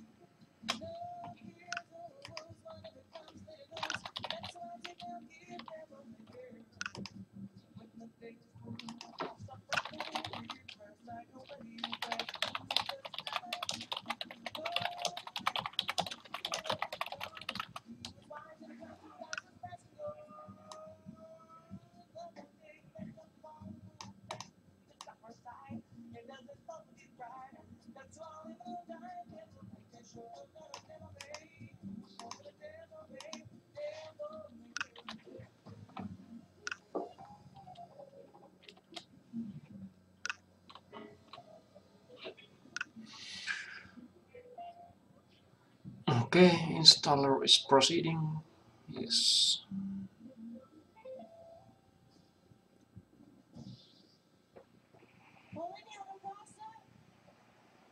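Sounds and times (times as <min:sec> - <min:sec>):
fast typing on keyboard: 0:01.7 - 0:05.8, 0:08.8 - 0:18.2, 0:32.2 - 0:32.5, 0:34.8 - 0:35.3.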